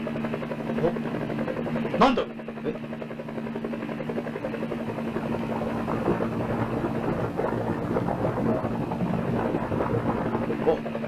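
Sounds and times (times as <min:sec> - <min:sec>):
aircraft engine drone: 0:00.0 - 0:11.0
low hum: 0:00.0 - 0:11.0.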